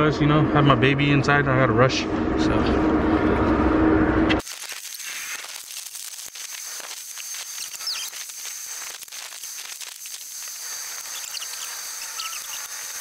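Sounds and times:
faint hiss: 0:04.5 - 0:13.0
thin steady high tone: 0:06.3 - 0:13.0.

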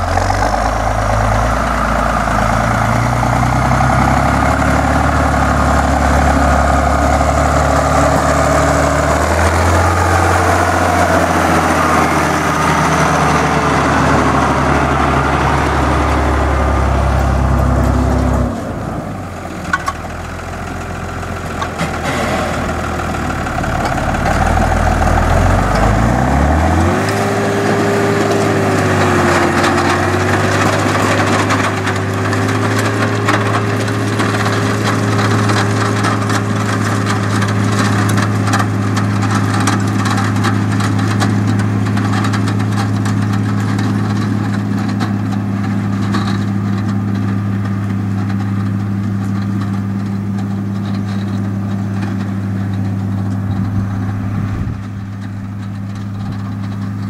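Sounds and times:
tractor diesel engine under load: 0:00.0 - 0:57.0
wagon pickup crackling clatter: 0:00.0 - 0:57.0.

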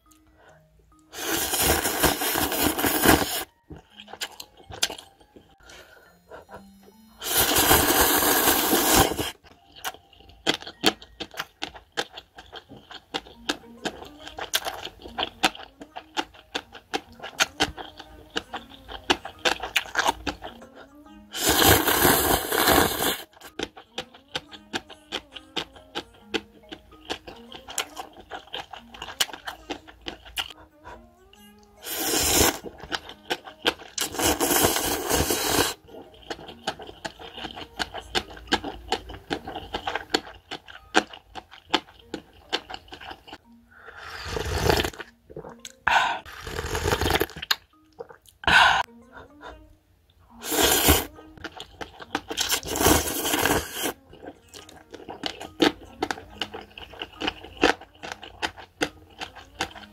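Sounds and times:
soft chewing and clicking: 0:00.0 - 0:01.1, 0:09.4 - 0:21.2, 0:23.4 - 0:31.8, 0:32.7 - 0:34.1, 0:35.8 - 0:43.6, 0:44.9 - 0:45.9, 0:51.1 - 0:52.7, 0:53.9 - 0:59.9
light background music: 0:00.0 - 0:59.9
noodles slurping: 0:01.1 - 0:05.0, 0:07.2 - 0:09.4, 0:21.3 - 0:23.9, 0:31.8 - 0:48.2, 0:50.4 - 0:59.9.

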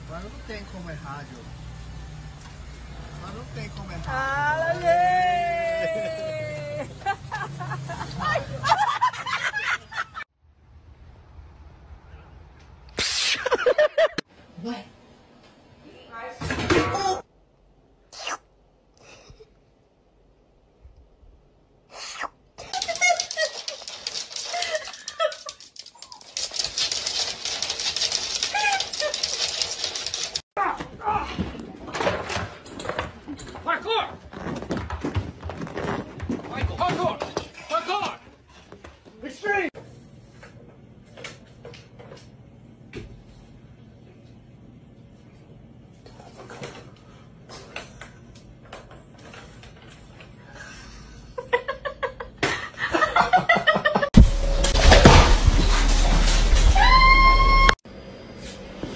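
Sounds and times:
person laughing hard: 0:22.6 - 0:25.6
dog claws clicking on wooden floor: 0:22.6 - 0:30.4
noisy scene: 0:54.2 - 0:58.9.

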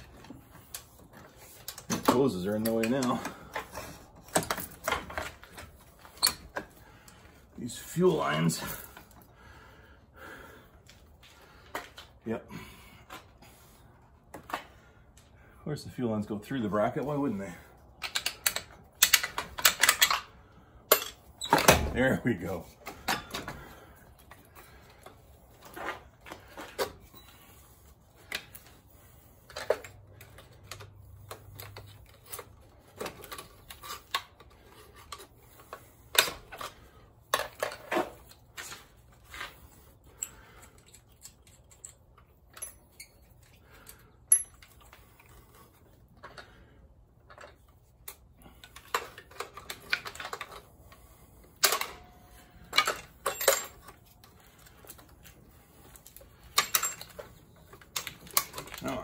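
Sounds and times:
metal parts and tools clicking: 0:17.9 - 0:21.8, 0:29.4 - 0:45.5, 0:47.2 - 0:59.0.

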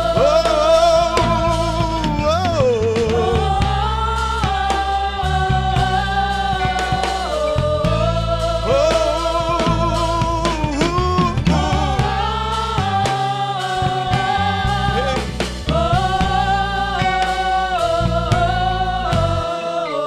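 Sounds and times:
gospel choir singing: 0:00.0 - 0:20.0
low instrumental accompaniment: 0:00.0 - 0:20.0.

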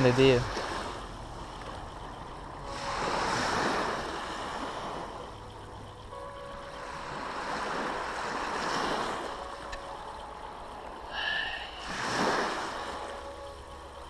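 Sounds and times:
waves washing over pebbles: 0:00.0 - 0:01.8, 0:02.6 - 0:05.2, 0:06.8 - 0:10.0, 0:10.8 - 0:13.4.

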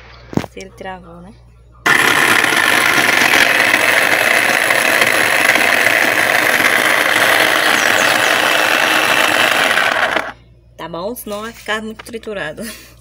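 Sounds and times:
blade chopping food in plastic bowl: 0:01.9 - 0:10.4
food processor motor running: 0:01.9 - 0:10.4.

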